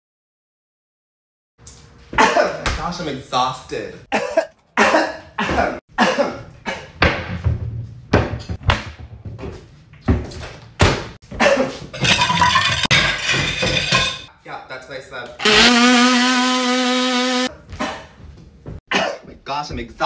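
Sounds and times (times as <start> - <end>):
person coughing: 2.2 - 2.6, 4.1 - 6.9, 11.3 - 11.8, 17.7 - 18.2, 18.9 - 19.3
knocks and thuds: 7.0 - 11.2.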